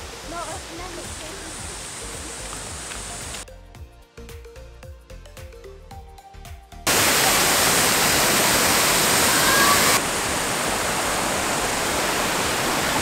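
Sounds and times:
waterfall rushing: 0.0s - 3.4s, 6.9s - 13.0s
soft music: 0.0s - 6.9s.

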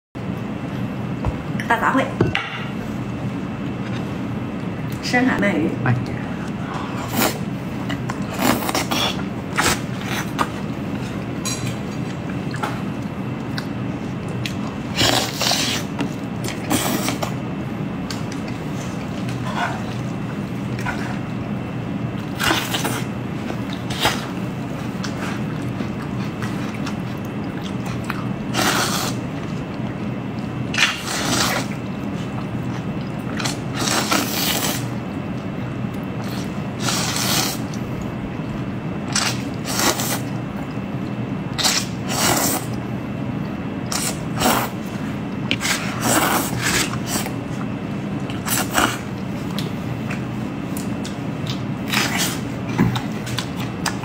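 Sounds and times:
steady low hum: 0.2s - 54.0s
person chewing: 6.4s - 17.4s, 22.2s - 54.0s
person slurping noodles: 8.2s - 10.3s, 14.9s - 16.0s, 16.6s - 17.3s, 28.5s - 29.3s, 30.8s - 32.4s, 33.4s - 34.9s, 36.2s - 37.7s, 39.2s - 40.3s, 41.6s - 42.8s, 43.9s - 44.8s, 45.6s - 47.4s.

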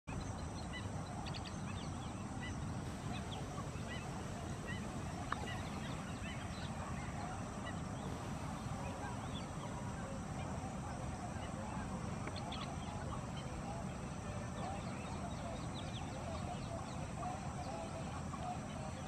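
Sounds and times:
small birds chirping: 0.1s - 19.0s
steady low rumble: 1.7s - 10.0s.

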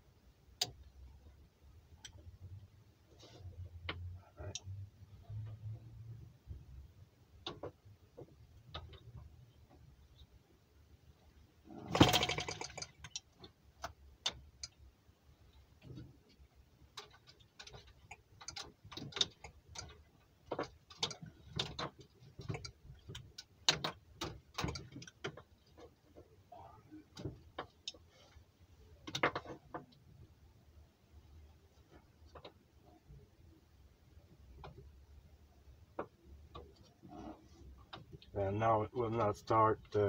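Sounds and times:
model engine clicks and knocks: 11.9s - 14.8s, 15.8s - 26.3s.

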